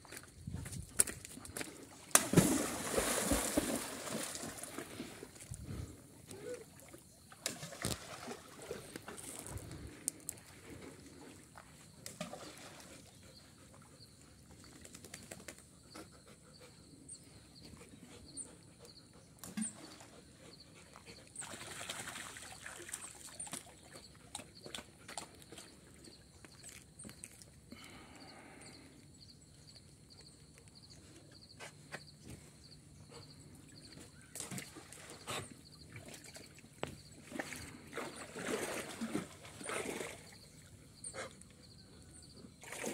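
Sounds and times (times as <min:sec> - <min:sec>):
light water splashes: 0:02.0 - 0:05.6, 0:06.3 - 0:10.6, 0:21.4 - 0:27.5, 0:34.3 - 0:40.7, 0:42.6 - 0:42.9.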